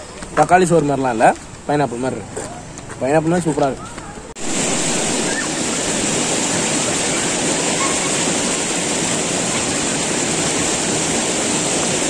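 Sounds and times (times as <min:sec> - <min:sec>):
river water rushing: 0:04.4 - 0:12.0.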